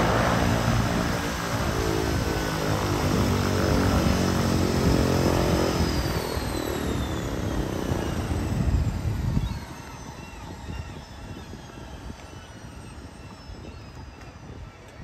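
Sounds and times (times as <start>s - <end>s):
propeller engine droning: 0.0s - 15.0s
turbine whine falling in pitch: 0.0s - 15.0s.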